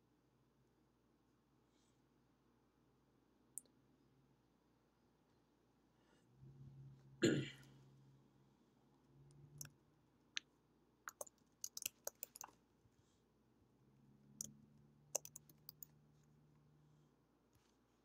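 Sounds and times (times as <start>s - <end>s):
keyboard typing: 11.1s - 12.6s, 15.1s - 16.0s.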